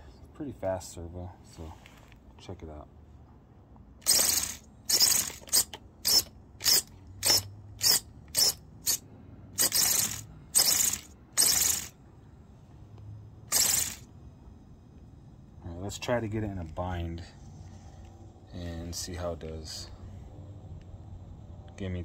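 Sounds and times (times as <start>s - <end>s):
steering servo snapping wheels: 4.0s - 9.0s, 9.6s - 12.0s, 13.5s - 14.1s.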